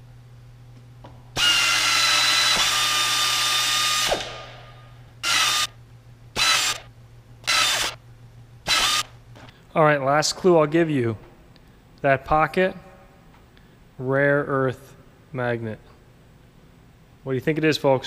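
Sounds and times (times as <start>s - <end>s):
pneumatic air motor whining: 1.4s - 4.6s, 5.2s - 5.8s, 6.4s - 8.0s, 8.6s - 9.5s.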